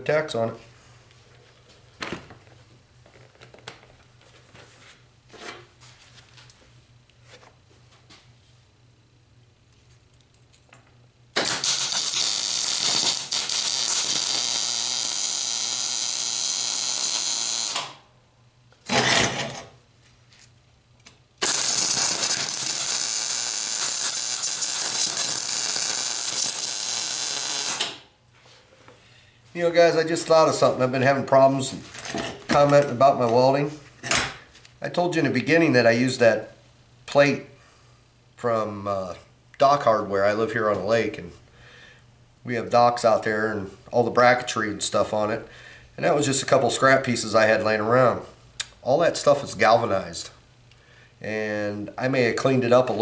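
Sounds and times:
arc welding: 11.3s - 18.0s, 21.4s - 28.1s.

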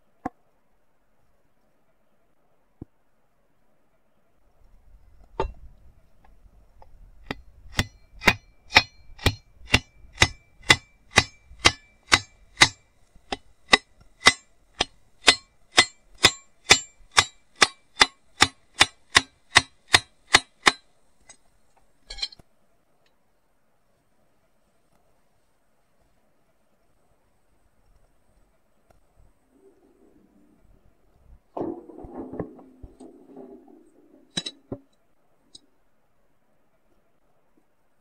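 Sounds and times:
scrape: 31.6s - 34.7s.

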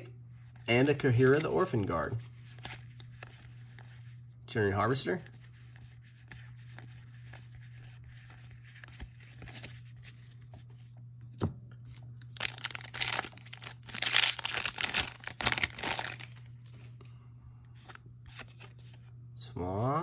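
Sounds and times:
card handling: 0.4s - 4.2s, 5.2s - 17.0s, 17.8s - 19.1s
foil wrapper tearing and crinkling: 12.3s - 16.4s.

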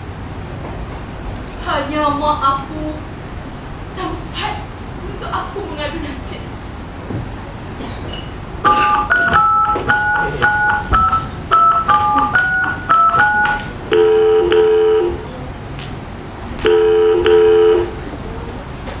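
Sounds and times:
phone ringback tone: 8.7s - 15.1s, 16.7s - 18.0s
touch-tone keypad beeps: 8.7s - 15.1s, 16.7s - 17.9s.

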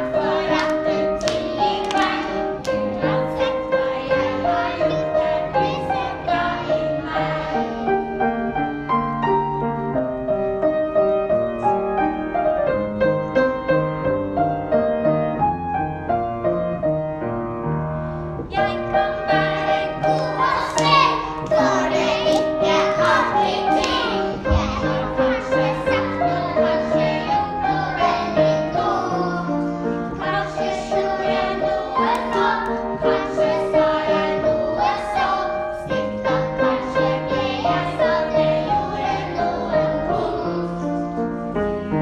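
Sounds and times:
children's choir singing: 0.0s - 9.5s, 18.5s - 42.0s
upright piano: 0.0s - 42.0s.

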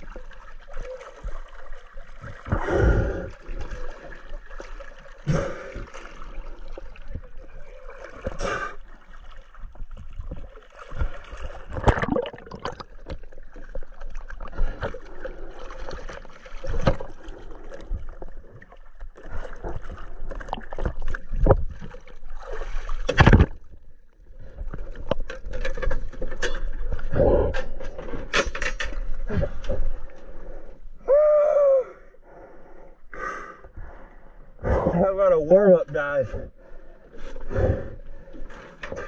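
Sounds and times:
sea water sloshing and splashing: 0.0s - 30.8s.

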